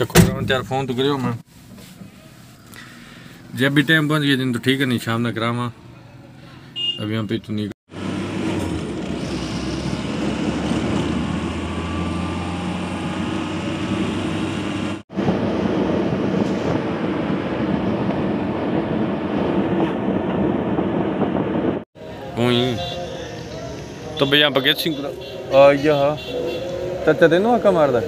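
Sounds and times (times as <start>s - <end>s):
truck engine and road drone: 7.9s - 28.0s.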